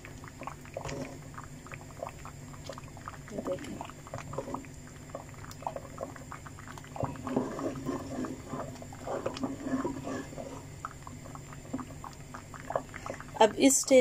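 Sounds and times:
ladle mashing thick stew: 0:05.4 - 0:13.4.

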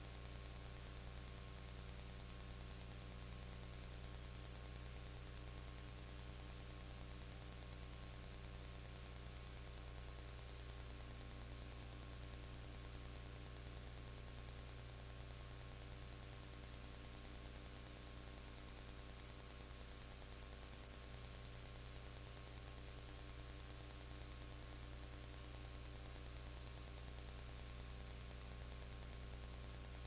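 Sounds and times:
low electrical hum: 0:00.0 - 0:30.0
tape hiss: 0:00.0 - 0:30.0.

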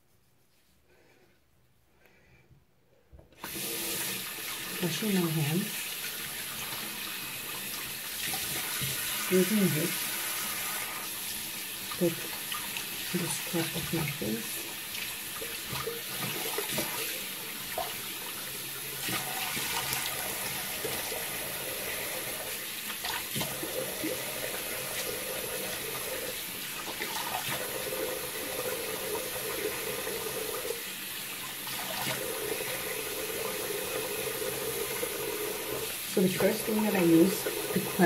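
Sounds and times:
water splashing: 0:03.5 - 0:21.3, 0:22.8 - 0:28.8
tap running into sink: 0:08.2 - 0:09.2.

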